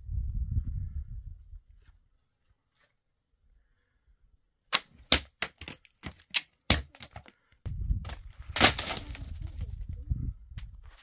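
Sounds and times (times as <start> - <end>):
sharp cracks and knocks: 4.7 - 7.4, 8.0 - 9.6
rough rustling and scraping: 8.0 - 10.0.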